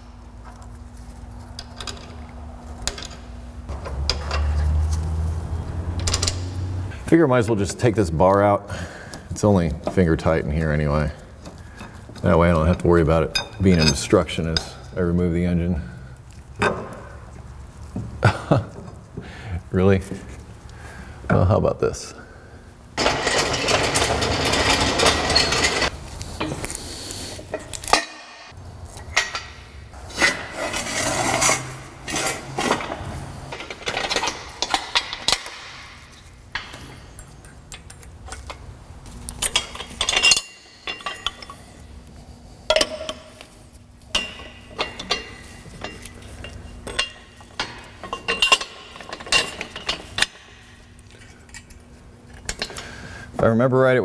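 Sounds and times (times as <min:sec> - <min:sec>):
metal tools clinking: 0:01.4 - 0:05.1, 0:06.0 - 0:06.6, 0:09.4 - 0:15.1, 0:23.0 - 0:26.6, 0:27.5 - 0:41.9, 0:42.7 - 0:53.0.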